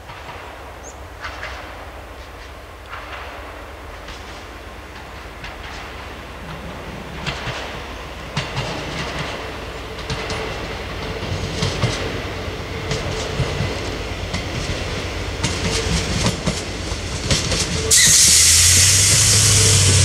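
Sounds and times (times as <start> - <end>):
railbus engine humming: 0.0 - 20.0
wheels clacking over rail joints: 0.0 - 20.0.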